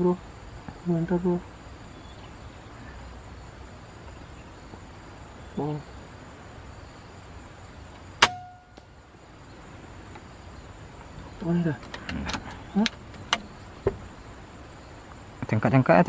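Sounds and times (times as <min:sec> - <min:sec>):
high insect drone: 0:00.0 - 0:16.0
air rifle shot with metallic ping: 0:08.2 - 0:08.8.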